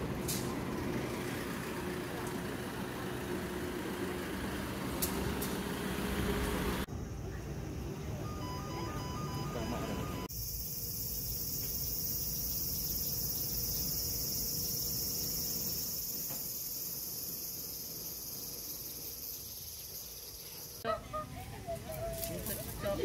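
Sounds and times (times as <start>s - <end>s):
insects droning: 0.4s - 23.0s
electronic chime tune: 8.2s - 10.3s.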